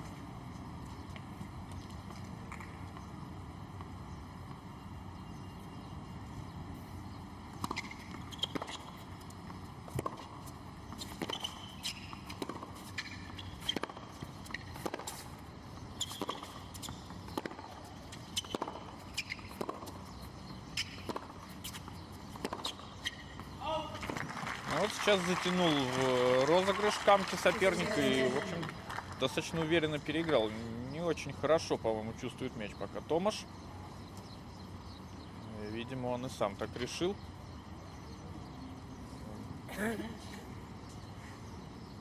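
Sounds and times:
steady background hum: 0.0s - 42.0s
tennis ball striking rackets: 7.6s - 15.3s, 16.0s - 24.8s.

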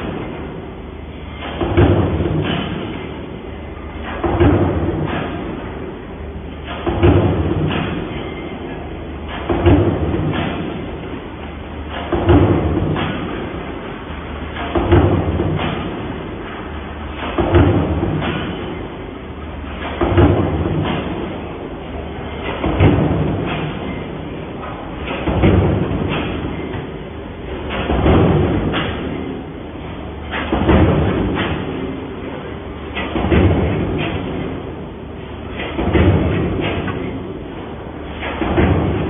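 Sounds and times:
stamping press clank: 1.4s - 3.2s, 17.2s - 18.8s, 19.6s - 21.4s, 22.3s - 26.9s, 30.2s - 34.6s, 35.5s - 37.2s, 38.0s - 39.0s.

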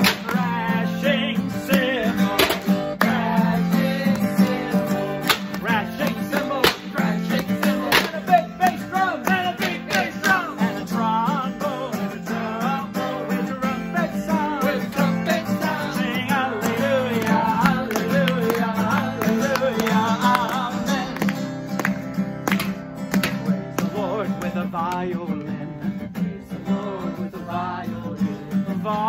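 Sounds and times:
sharp percussive guitar strokes: 0.0s - 0.6s, 1.7s - 8.4s
people singing a praise song: 0.0s - 21.2s
acoustic guitar strumming: 0.0s - 29.0s.

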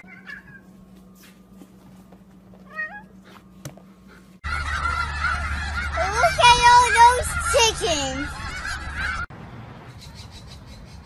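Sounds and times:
geese honking: 4.4s - 9.3s.

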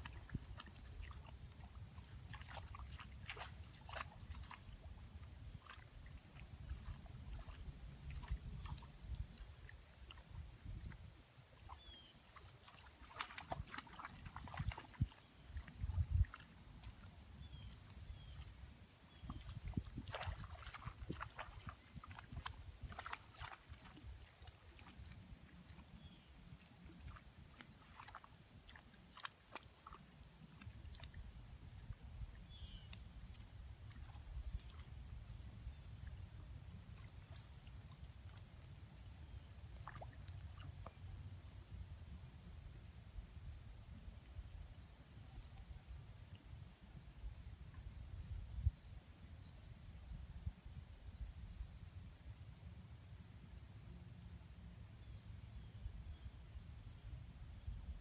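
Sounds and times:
insects chirping: 0.0s - 58.0s.

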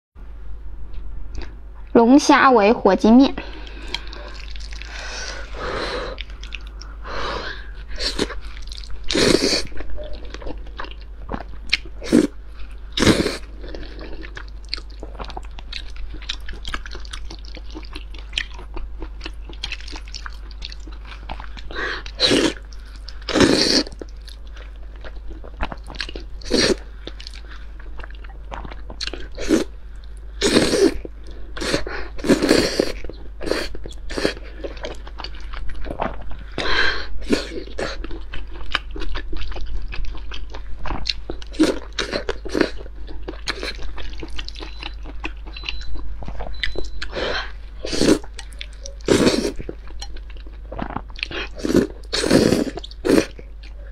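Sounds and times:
chewing: 3.4s - 7.0s, 7.6s - 53.9s
noodles slurped: 50.7s - 53.4s.

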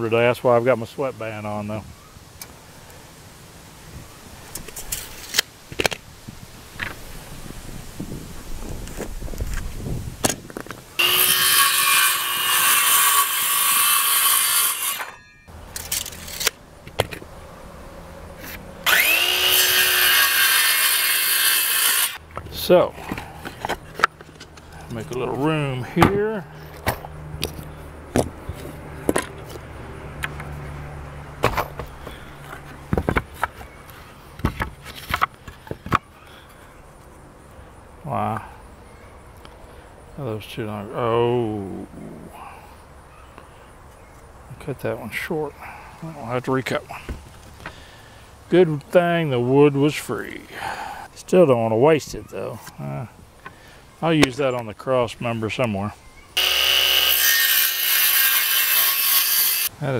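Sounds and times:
circular saw cutting wood: 11.0s - 15.4s, 18.4s - 22.2s, 56.4s - 59.7s.

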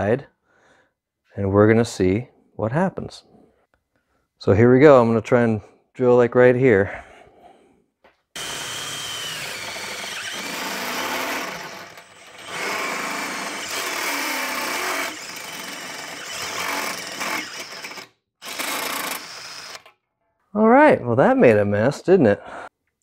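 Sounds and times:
drill motor whining: 8.4s - 19.9s
step bit grinding through steel: 8.4s - 19.9s.

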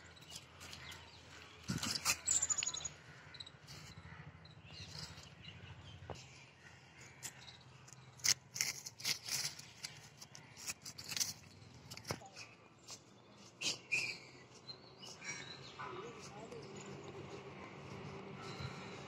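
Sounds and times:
leaves rustling and clicking: 1.6s - 2.8s, 7.0s - 13.0s.

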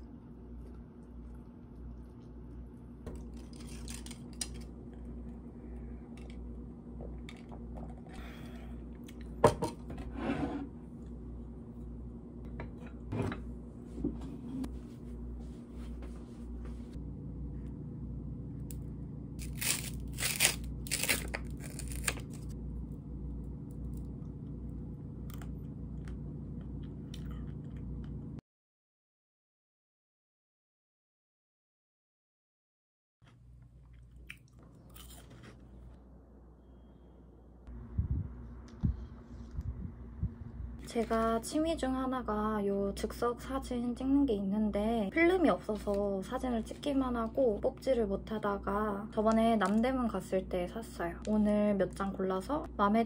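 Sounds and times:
low hum: 0.0s - 28.4s, 33.3s - 53.0s
wrapper tearing and crinkling: 3.3s - 4.7s, 19.4s - 22.5s.

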